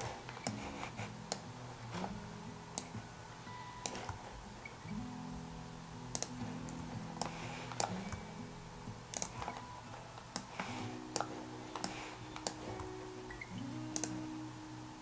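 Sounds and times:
mouse and keyboard clicks: 0:03.8 - 0:04.2, 0:06.2 - 0:08.3, 0:09.1 - 0:09.6, 0:10.3 - 0:12.9, 0:13.9 - 0:14.2.

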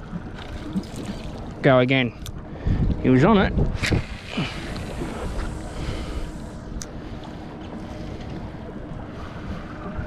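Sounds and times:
faint steady hum: 0:00.0 - 0:10.0
wind on microphone: 0:02.6 - 0:06.9.

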